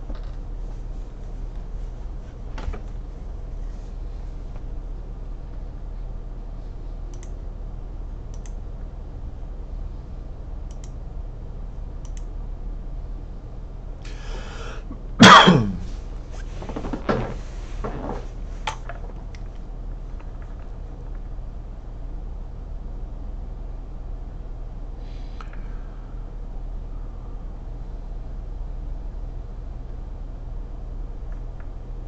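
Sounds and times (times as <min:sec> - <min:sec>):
steady low hum: 0:00.0 - 0:32.0
intake of breath: 0:14.1 - 0:15.0
person coughing: 0:14.1 - 0:16.0
person clearing throat: 0:14.9 - 0:16.0.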